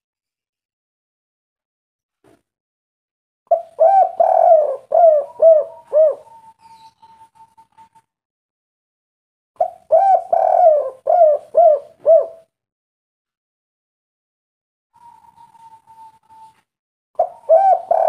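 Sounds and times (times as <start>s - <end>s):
dove cooing: 3.5s - 6.5s, 9.6s - 12.5s, 17.2s - 18.0s.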